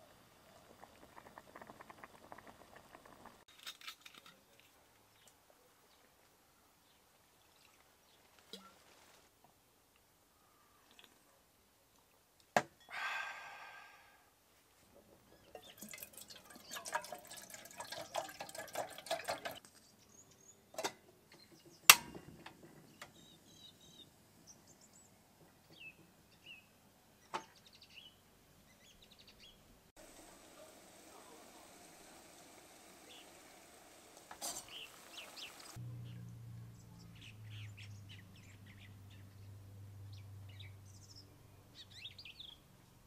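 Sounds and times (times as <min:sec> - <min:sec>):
water pouring into kettle: 0:00.4 - 0:03.4, 0:15.6 - 0:19.6, 0:30.0 - 0:35.8
faint bird chirps: 0:10.3 - 0:11.1.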